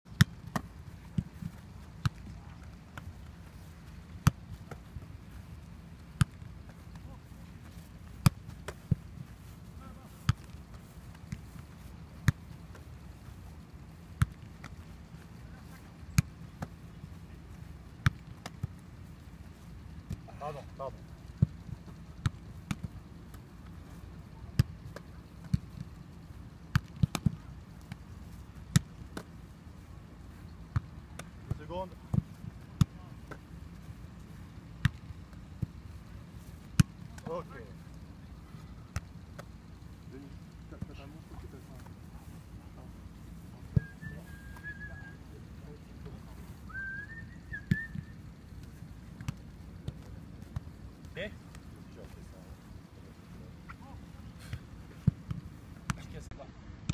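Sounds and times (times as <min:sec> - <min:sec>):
football being kicked on grass: 0:00.1 - 0:13.4, 0:14.1 - 0:18.8, 0:20.0 - 0:23.4, 0:24.5 - 0:26.0, 0:26.7 - 0:29.4, 0:30.7 - 0:39.6, 0:47.7 - 0:52.2, 0:53.8 - 0:56.2.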